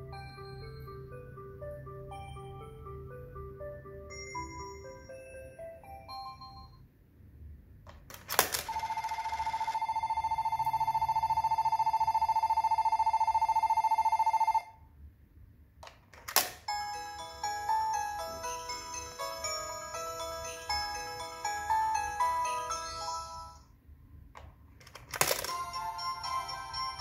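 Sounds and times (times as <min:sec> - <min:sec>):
electronic bell trilling: 0:00.0 - 0:03.1, 0:03.9 - 0:06.8, 0:08.7 - 0:14.7, 0:16.7 - 0:23.7, 0:25.5 - 0:27.0
electronic chiming tune: 0:00.0 - 0:06.8
coin clacking into slot: 0:25.1 - 0:25.8.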